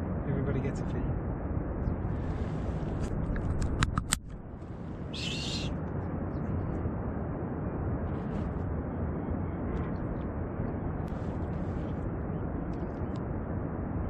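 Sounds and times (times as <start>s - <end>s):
low rumble: 0.0s - 14.0s
sharp clicks: 3.4s - 4.4s
gull calling: 5.1s - 5.8s.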